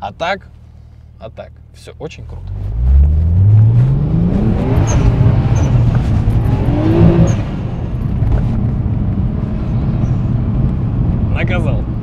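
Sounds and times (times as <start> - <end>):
car engine revving high: 2.6 - 8.2.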